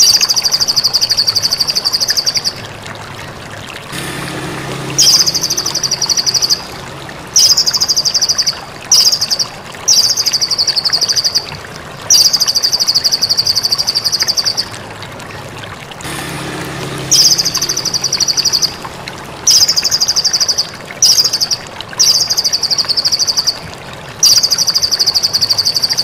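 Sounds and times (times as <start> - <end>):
bird singing rattling trill: 0.0 - 2.7, 4.8 - 11.5, 12.1 - 14.8, 17.0 - 23.6, 24.2 - 26.0.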